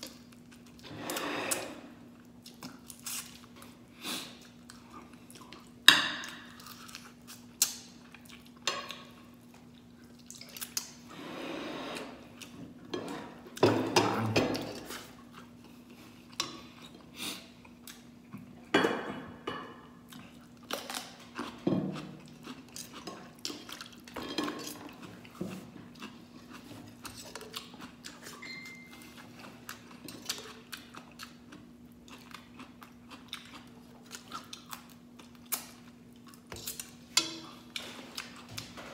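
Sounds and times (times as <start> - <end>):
chewing: 20.1 - 38.9.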